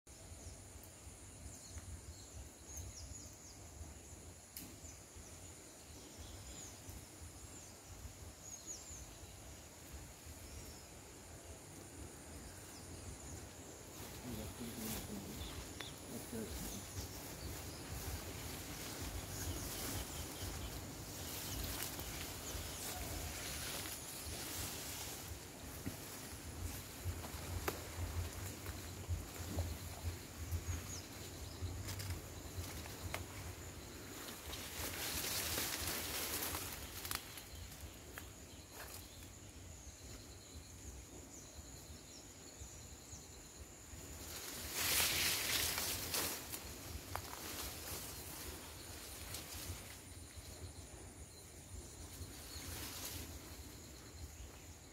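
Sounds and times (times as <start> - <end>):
light snaps: 4.5 - 4.8
leaves rustling: 5.9 - 39.5, 43.8 - 54.9
footsteps in undergrowth: 13.4 - 39.4, 44.2 - 50.6.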